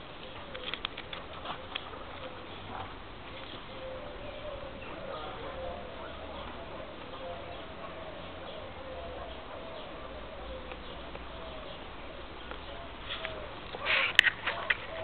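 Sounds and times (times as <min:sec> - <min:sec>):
rustling crunch: 0:12.4 - 0:15.0.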